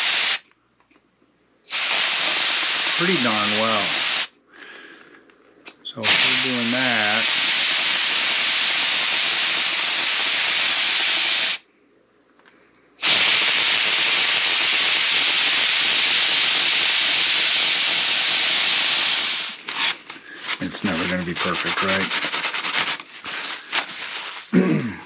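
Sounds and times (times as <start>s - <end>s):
steamer hissing: 0.0s - 0.4s, 1.7s - 4.4s, 5.9s - 11.6s, 13.0s - 24.5s.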